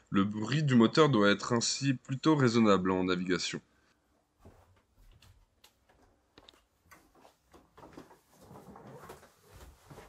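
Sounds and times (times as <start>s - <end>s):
soft rustle: 4.4s - 10.0s.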